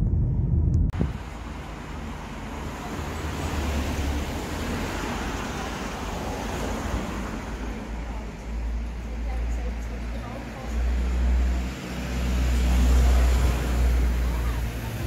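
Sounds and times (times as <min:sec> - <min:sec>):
car driving past: 0:01.0 - 0:09.2, 0:10.0 - 0:15.0.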